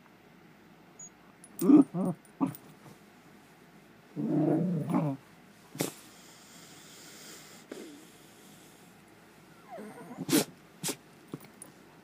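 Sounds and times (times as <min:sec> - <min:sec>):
dog whining grumble: 0:01.6 - 0:02.7, 0:04.2 - 0:05.2, 0:09.5 - 0:10.6.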